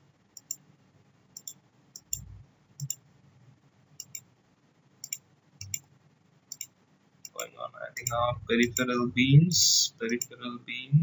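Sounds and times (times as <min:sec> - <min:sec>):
computer mouse clicking: 0:00.3 - 0:00.6, 0:01.4 - 0:03.0, 0:04.0 - 0:04.2, 0:05.0 - 0:05.9, 0:06.5 - 0:08.9, 0:10.0 - 0:10.4.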